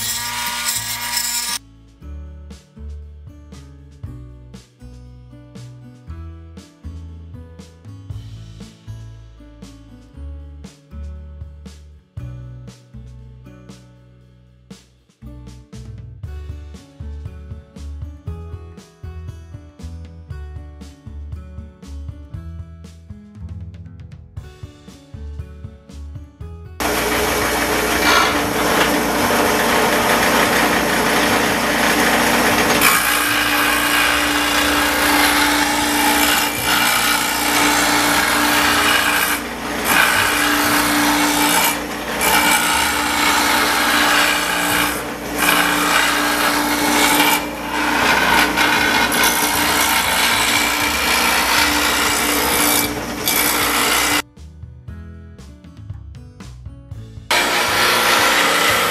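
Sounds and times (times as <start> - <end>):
grinding wheel grinding steel: 0.0 - 1.6, 26.8 - 54.2, 57.3 - 58.9.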